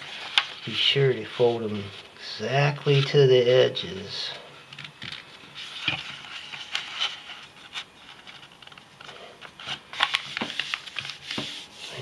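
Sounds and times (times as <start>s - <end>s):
paper rustling and crackling: 0.0s - 2.1s, 4.9s - 12.0s.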